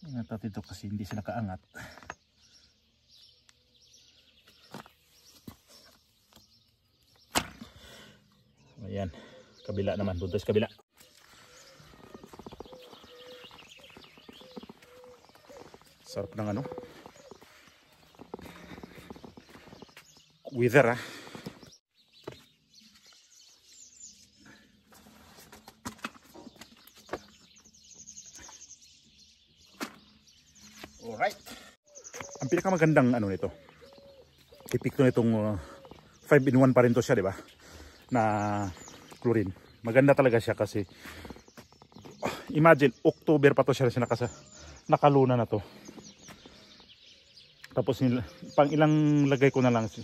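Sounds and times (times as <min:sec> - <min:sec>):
birds chirping: 0:00.0 - 0:50.0
small bird trilling: 0:11.5 - 0:17.4.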